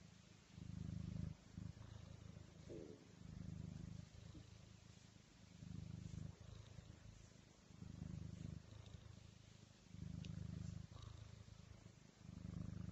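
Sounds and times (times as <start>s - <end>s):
cat purring: 0.0s - 12.9s.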